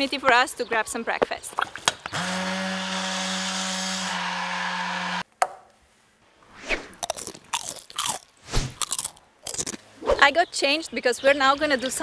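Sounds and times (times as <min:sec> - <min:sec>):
hand blender motor running: 0:02.1 - 0:05.2.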